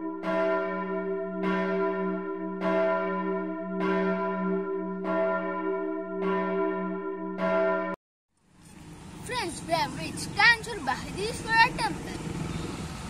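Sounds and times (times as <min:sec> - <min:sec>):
church bell tolling: 0:00.0 - 0:08.0.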